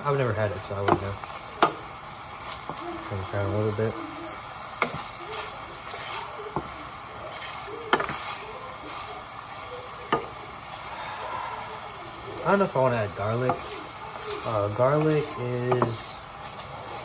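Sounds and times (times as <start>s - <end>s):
bacon sizzling: 0.0s - 17.0s
wooden spoon knocking pot: 0.8s - 1.9s, 15.7s - 16.0s.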